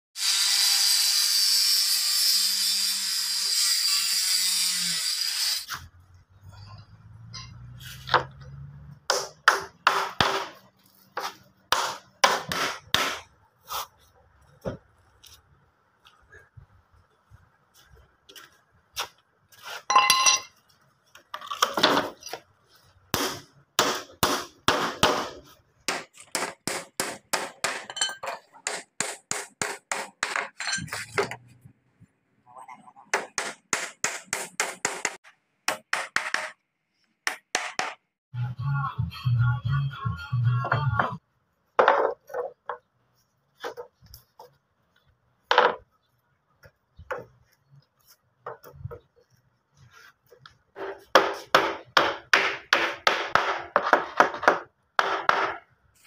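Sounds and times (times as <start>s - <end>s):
scrape: 7.7s - 8.1s, 13.6s - 14.2s, 19.5s - 19.9s, 49.8s - 51.1s.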